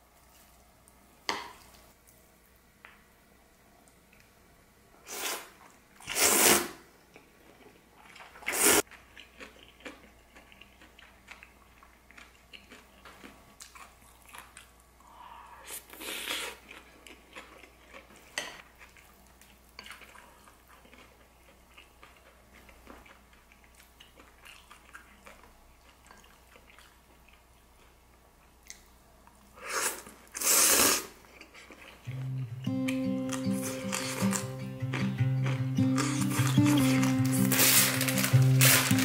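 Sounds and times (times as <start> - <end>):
chewing: 7.1 - 14.8, 15.9 - 30.4, 31.2 - 37.8.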